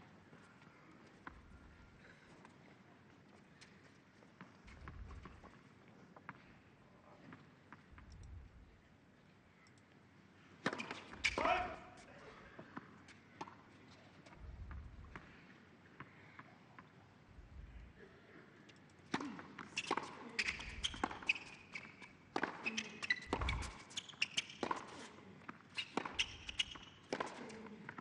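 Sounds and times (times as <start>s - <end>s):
sneakers squeaking on court: 10.6s - 11.7s, 19.2s - 27.7s
tennis ball strikes and bounces: 19.1s - 28.0s.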